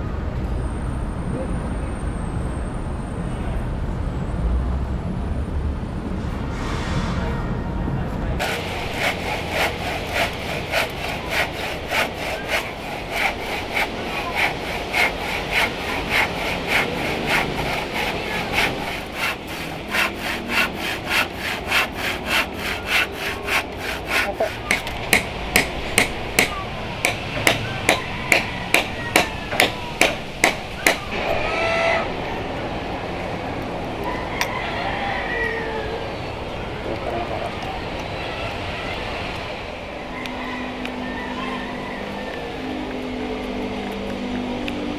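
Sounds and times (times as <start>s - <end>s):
handsaw cutting wood: 8.4s - 31.5s.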